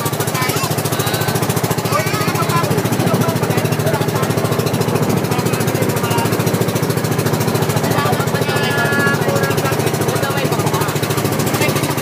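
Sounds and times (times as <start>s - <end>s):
boat engine chugging: 0.0s - 12.0s
water and wind hiss: 0.0s - 12.0s.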